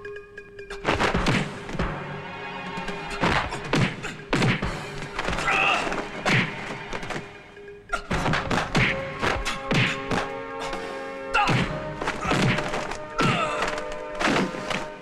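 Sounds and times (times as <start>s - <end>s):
background music: 0.0s - 15.0s
punch impacts: 11.4s - 13.4s.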